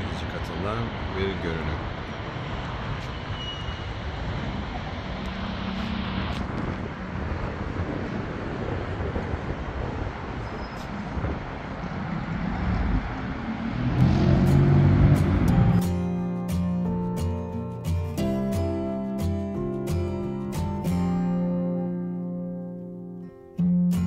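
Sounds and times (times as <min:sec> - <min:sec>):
city road traffic hum: 0:00.0 - 0:24.0
music: 0:14.0 - 0:24.0.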